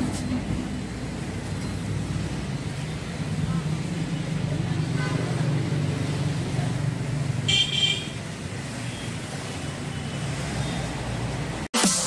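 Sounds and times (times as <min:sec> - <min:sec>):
street traffic rumble: 0:00.0 - 0:11.8
vehicle horn toot: 0:04.9 - 0:05.4, 0:07.5 - 0:08.2.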